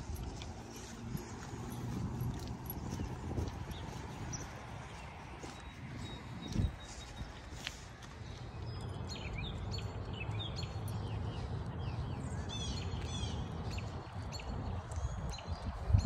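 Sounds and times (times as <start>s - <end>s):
small birds chirping: 0.1s - 16.0s.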